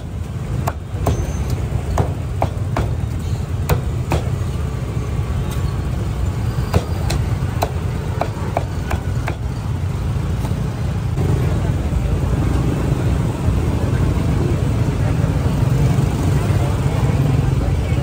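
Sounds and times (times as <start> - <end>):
street traffic rumble: 0.0 - 18.0
cleaver chopping meat: 0.5 - 4.4, 6.7 - 9.5.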